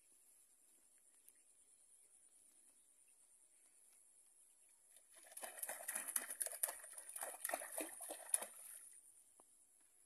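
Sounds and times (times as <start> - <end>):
fish splashing in water: 5.0 - 9.0.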